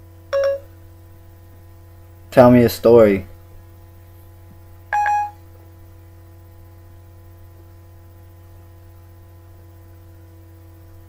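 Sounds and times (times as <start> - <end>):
faint steady tones: 0.0 - 2.2, 4.8 - 6.1
steady low hum: 0.0 - 11.0
short pitched phone chime: 0.4 - 0.7, 5.0 - 5.4.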